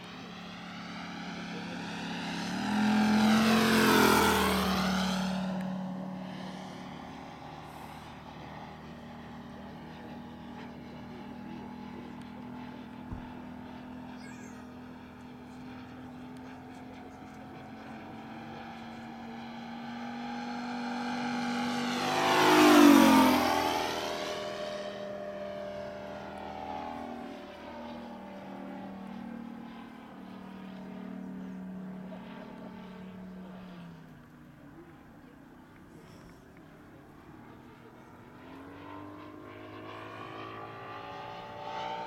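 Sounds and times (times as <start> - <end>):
model airplane engine droning: 0.0 - 42.0.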